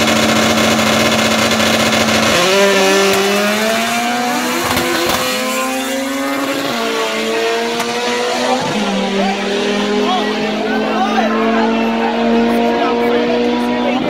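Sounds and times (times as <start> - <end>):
race car engines revving and accelerating: 0.0 - 14.0.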